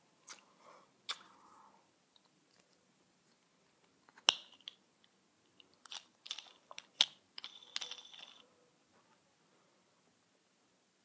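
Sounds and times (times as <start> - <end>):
lego pieces clicking together: 5.9 - 8.4.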